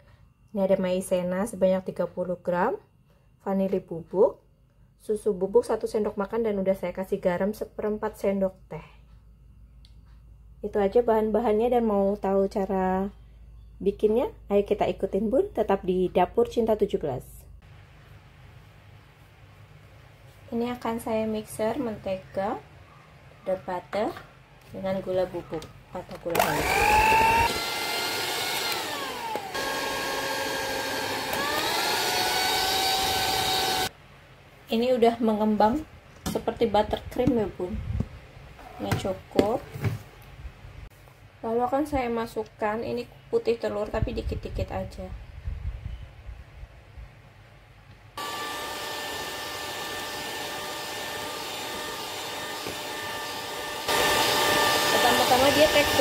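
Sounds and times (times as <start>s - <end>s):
electric mixer whining: 26.3s - 33.9s, 48.2s - 56.0s.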